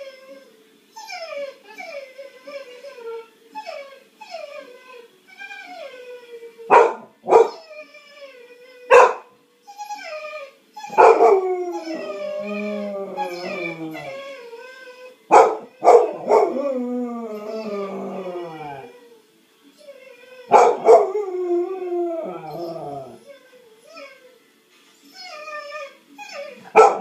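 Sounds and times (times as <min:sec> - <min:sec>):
dog whining and howling: 0:00.0 - 0:27.0
dog barking: 0:06.7 - 0:07.6, 0:08.9 - 0:09.3, 0:11.0 - 0:11.3, 0:15.3 - 0:16.5, 0:20.5 - 0:21.1, 0:26.7 - 0:27.0.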